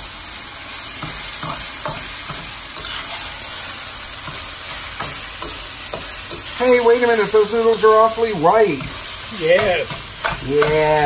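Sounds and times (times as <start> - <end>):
food sizzling in a wok: 0.0 - 11.0
metal spatula scraping a pan: 1.0 - 8.2.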